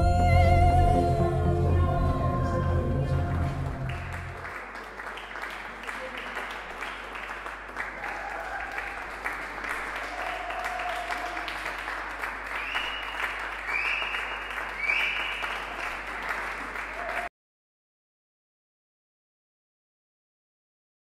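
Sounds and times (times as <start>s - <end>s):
audience applauding: 3.1s - 17.3s.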